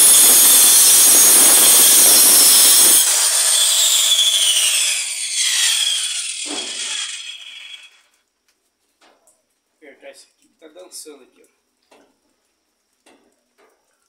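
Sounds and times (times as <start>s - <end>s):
electric saw cutting wood: 0.0s - 8.1s.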